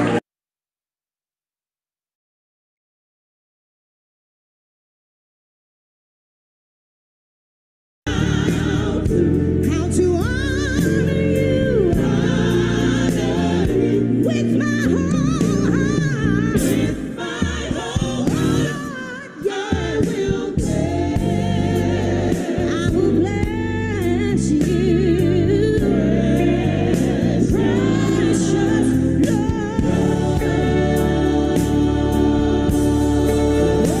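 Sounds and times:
choir singing: 0:00.0 - 0:00.2, 0:08.1 - 0:34.0
sustained instrumental chords: 0:08.1 - 0:19.5, 0:20.4 - 0:34.0.

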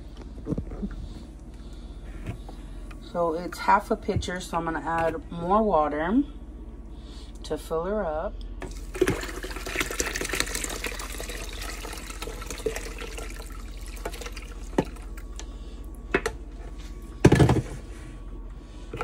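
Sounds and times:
water pouring through strainer: 0:08.7 - 0:14.8.

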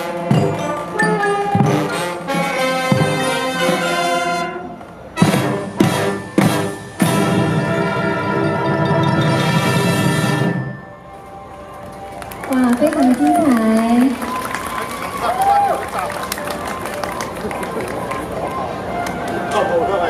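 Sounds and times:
marching band playing: 0:00.0 - 0:20.0.

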